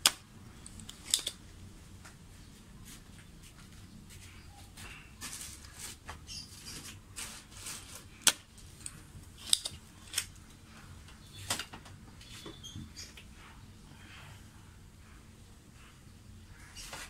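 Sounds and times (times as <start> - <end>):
scratchy handling noises: 2.8 - 13.3.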